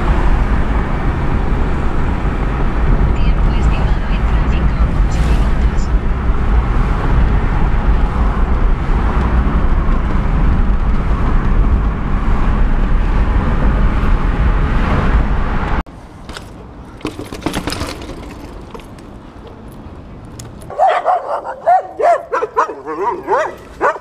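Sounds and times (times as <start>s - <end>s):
car road and engine rumble: 0.0s - 24.0s
bike rattling over stone paving: 16.0s - 20.7s.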